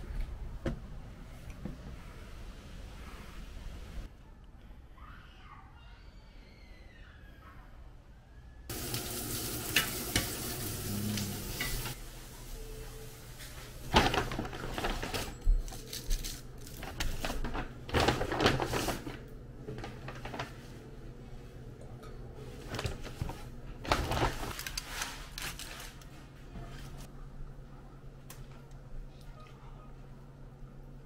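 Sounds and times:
paper bag and wrappers crinkling: 13.4 - 20.8, 22.5 - 26.3.

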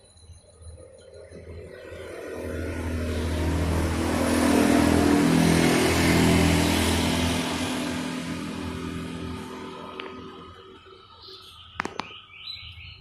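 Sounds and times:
vehicle passing by: 1.5 - 11.1.

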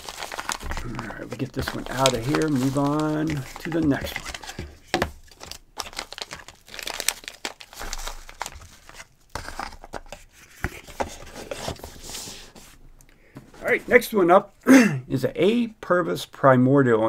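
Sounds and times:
plastic bag crinkling: 0.0 - 10.0
cardboard box rustling: 0.0 - 12.8.

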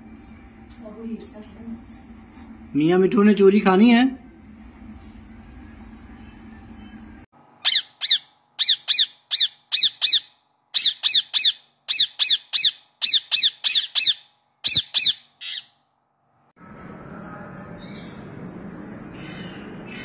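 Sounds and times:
parakeet squawking: 7.6 - 15.7.

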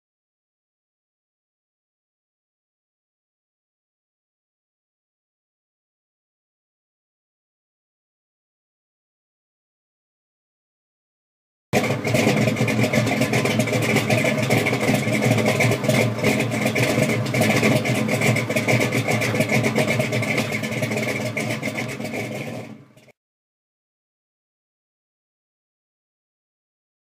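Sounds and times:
car engine running loudly: 11.8 - 23.1.

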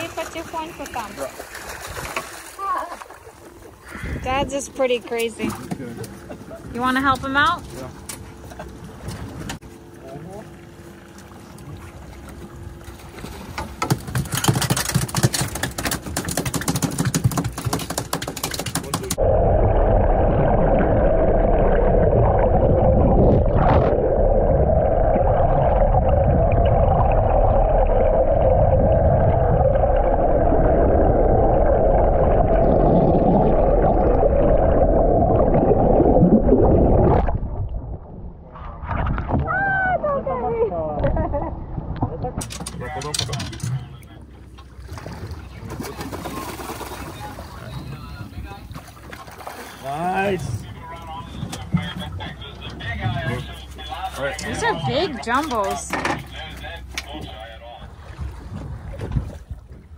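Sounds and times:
water splashing: 0.0 - 7.9, 10.3 - 59.9
wind: 0.0 - 59.9
muffled underwater rush: 18.8 - 43.0, 43.7 - 59.9.

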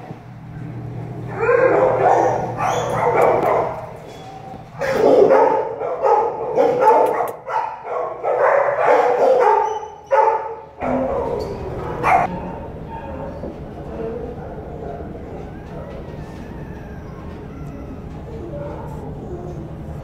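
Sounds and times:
dog barking: 1.3 - 4.0, 4.8 - 11.3, 12.0 - 12.4.

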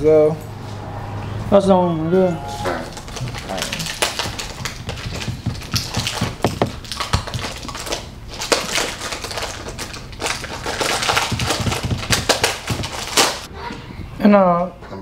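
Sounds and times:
rustling and crinkling: 2.9 - 13.5.

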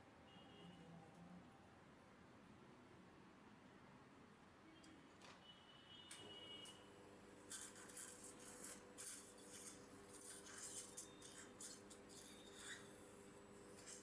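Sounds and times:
dental suction hissing: 7.5 - 13.0.

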